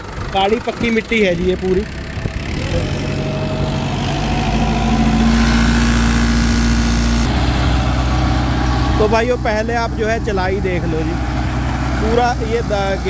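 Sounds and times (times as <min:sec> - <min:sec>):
tractor diesel engine under load: 0:00.0 - 0:13.0
rotavator tilling soil: 0:00.5 - 0:13.0.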